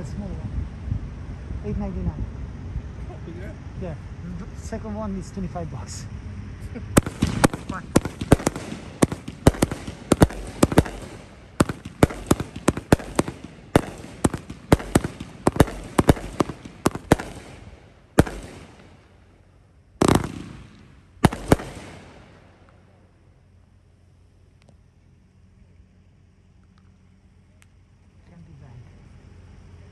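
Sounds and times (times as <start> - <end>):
firework shells banging: 7.0 - 23.0.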